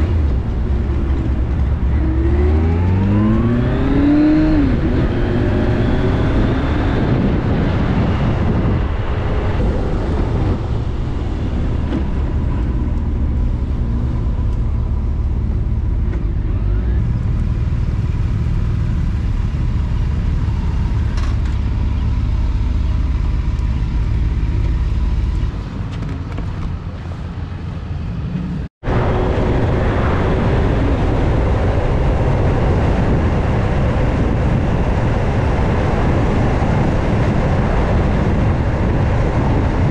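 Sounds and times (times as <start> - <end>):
wind rush: 0.0 - 16.4, 28.1 - 39.9
motorcycle engine rumble: 0.0 - 39.9.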